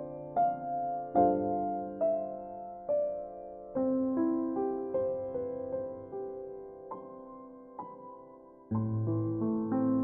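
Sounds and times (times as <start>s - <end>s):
soft piano notes: 0.0s - 10.0s.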